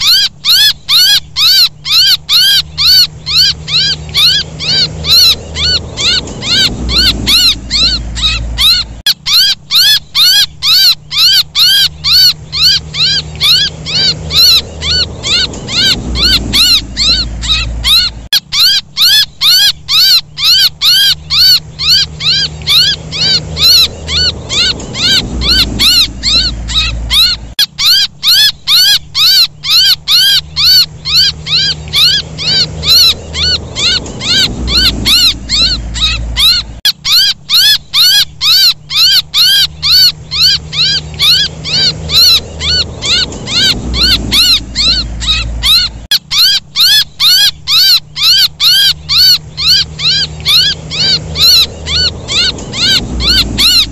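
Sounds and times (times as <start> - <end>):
baby bird distress chirps: 0.0 - 53.9
low hum: 0.0 - 53.9.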